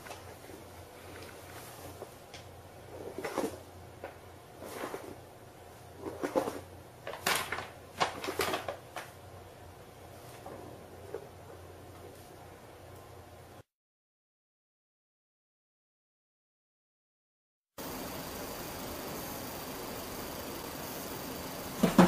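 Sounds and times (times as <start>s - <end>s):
paper bag crinkling: 6.1s - 9.2s.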